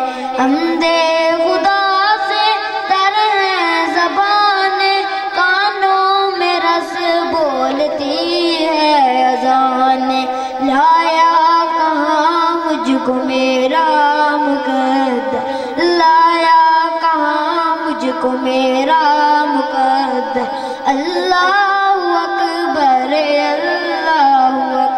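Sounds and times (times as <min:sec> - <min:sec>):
boy singing into microphone: 0:00.0 - 0:24.9.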